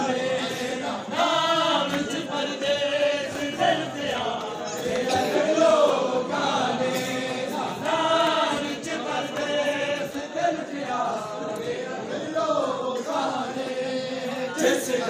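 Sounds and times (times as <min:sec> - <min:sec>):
crowd of men chanting: 0:00.0 - 0:15.0.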